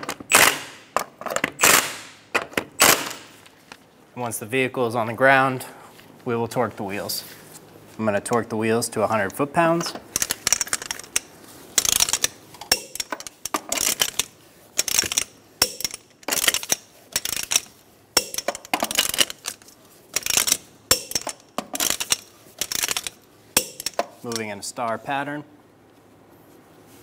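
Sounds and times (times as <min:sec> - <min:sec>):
torque wrench ratcheting and clicking: 0:10.1 - 0:19.6, 0:20.2 - 0:24.1.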